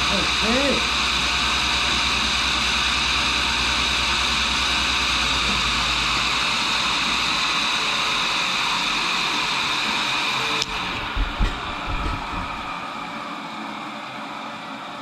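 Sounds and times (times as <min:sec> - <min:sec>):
grinder wheel spinning with hiss: 0:00.0 - 0:13.2
low hum: 0:10.6 - 0:13.0.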